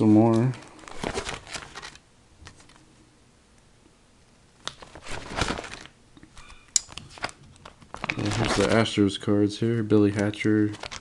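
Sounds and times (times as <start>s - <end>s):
plastic binder pages crinkling: 0.1s - 2.8s, 4.7s - 9.0s, 10.1s - 11.0s.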